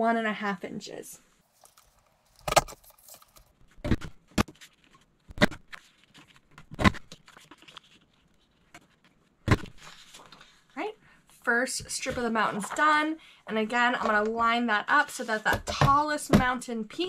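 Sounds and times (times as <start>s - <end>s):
faint paper rustle: 1.5s - 3.8s, 5.7s - 10.8s.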